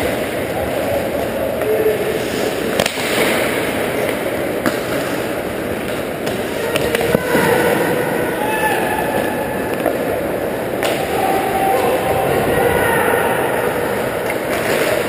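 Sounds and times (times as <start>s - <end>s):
hockey sticks cracking on puck: 2.2s - 7.4s
skates scraping on ice: 13.9s - 15.0s.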